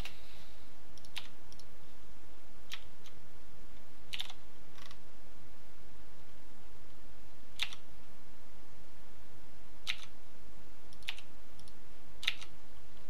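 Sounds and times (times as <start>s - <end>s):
steady low hum: 0.0s - 13.0s
computer keyboard clicking: 1.0s - 1.7s, 4.1s - 5.0s, 7.6s - 7.8s, 9.8s - 10.1s, 10.9s - 12.5s.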